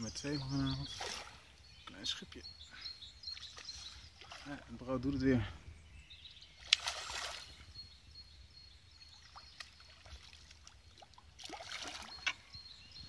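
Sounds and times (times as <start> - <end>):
small water splashes: 0.8 - 1.5, 3.2 - 4.9, 6.6 - 7.7, 9.0 - 12.5.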